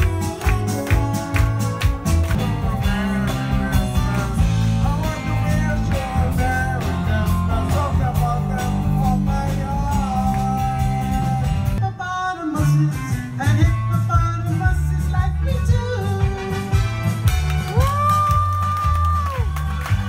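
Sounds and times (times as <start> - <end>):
soul band playing: 0.0 - 20.0
man singing into a microphone: 2.5 - 16.8.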